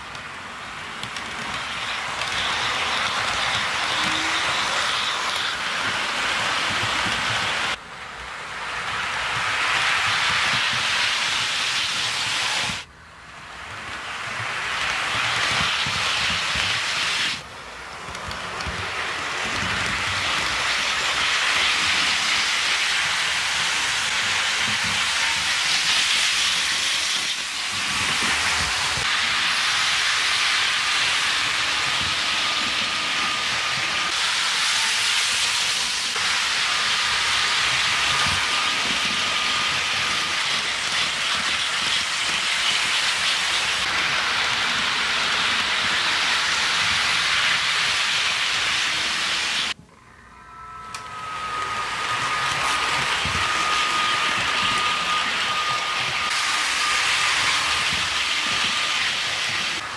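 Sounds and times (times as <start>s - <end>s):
model trains whirring on track: 0.0s - 59.9s
faint thin whine: 49.8s - 56.2s.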